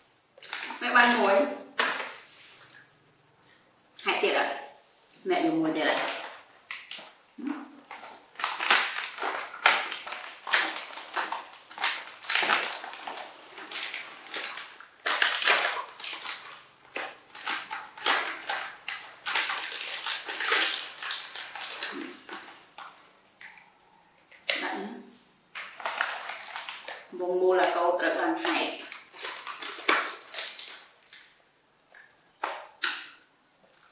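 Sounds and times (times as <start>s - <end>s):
plastic snack packets crackling: 0.4s - 2.8s, 5.8s - 7.2s, 7.8s - 33.9s.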